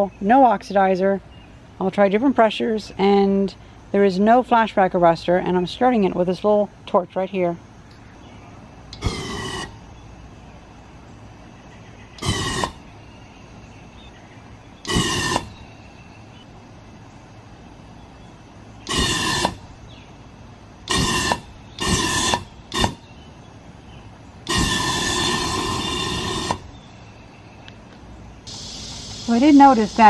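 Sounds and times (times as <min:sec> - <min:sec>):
burning gas blasts: 0:08.9 - 0:09.9, 0:12.2 - 0:13.0, 0:14.8 - 0:15.7, 0:18.8 - 0:19.8, 0:20.8 - 0:23.1, 0:24.4 - 0:26.8.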